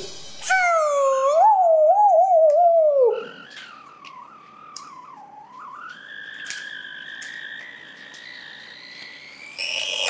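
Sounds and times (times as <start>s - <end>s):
small electric motor whining: 7.2s - 10.0s.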